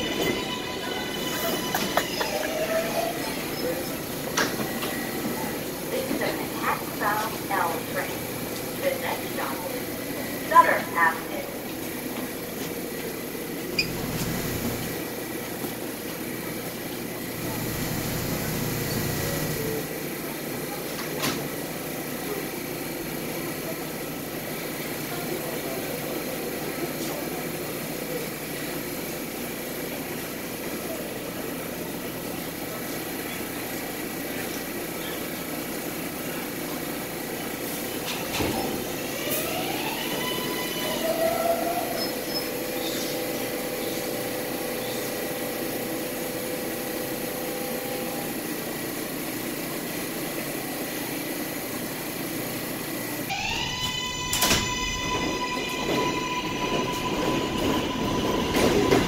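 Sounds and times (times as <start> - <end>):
subway train humming: 0.0 - 59.0.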